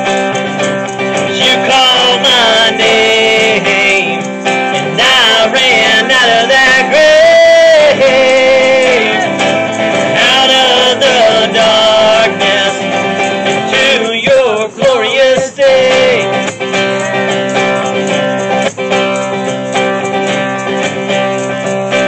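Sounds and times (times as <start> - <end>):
acoustic guitar strumming: 0.0 - 22.0
man singing: 1.2 - 17.4.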